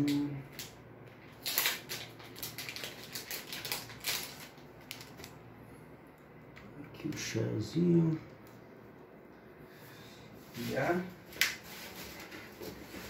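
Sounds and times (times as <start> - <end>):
cardboard box and plastic rustling: 1.3 - 5.3, 11.6 - 13.0.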